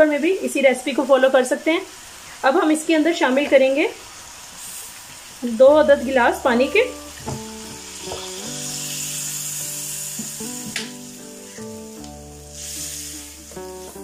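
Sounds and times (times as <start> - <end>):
water hissing in hot pan: 0.0 - 14.0
soft background music: 5.4 - 14.0.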